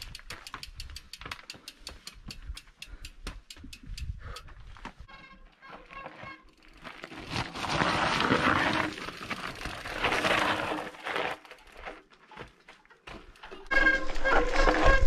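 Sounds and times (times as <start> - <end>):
bike tyres crunching over gravel: 4.7 - 15.0.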